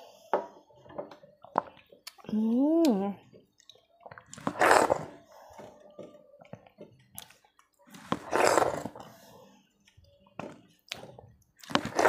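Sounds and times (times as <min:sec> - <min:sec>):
wet slurp: 0:04.2 - 0:05.3, 0:08.0 - 0:09.1.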